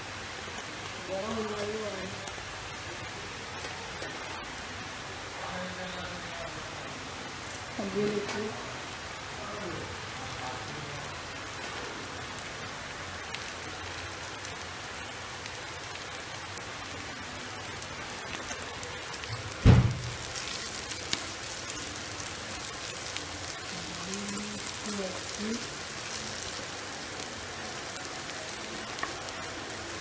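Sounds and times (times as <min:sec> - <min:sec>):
onions sizzling in oil: 0:00.0 - 0:30.0
loud knock: 0:19.6 - 0:20.1.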